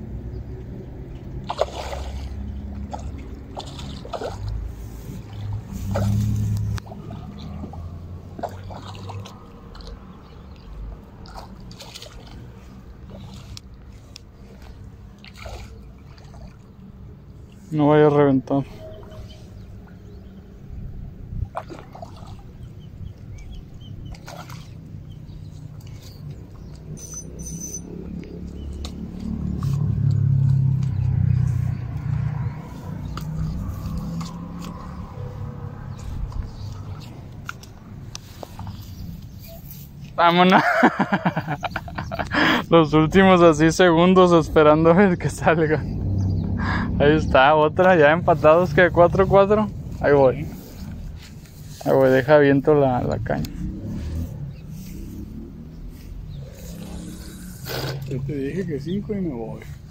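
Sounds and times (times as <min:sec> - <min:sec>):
small birds chirping: 0:00.0 - 0:59.9
water splashing and slurping: 0:00.0 - 0:59.9
steady low rumble: 0:41.0 - 0:59.9.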